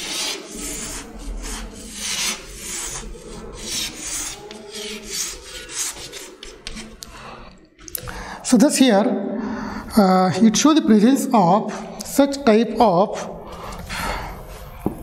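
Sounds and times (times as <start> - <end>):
chalk scraping on blackboard: 0.0 - 7.2.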